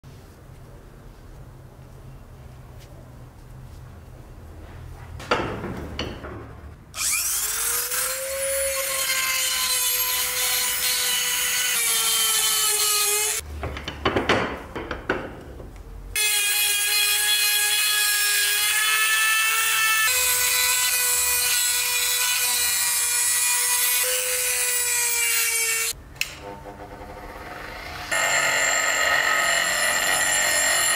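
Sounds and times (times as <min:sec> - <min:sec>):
rotary tool grinding metal: 0:07.0 - 0:13.4, 0:16.2 - 0:30.9.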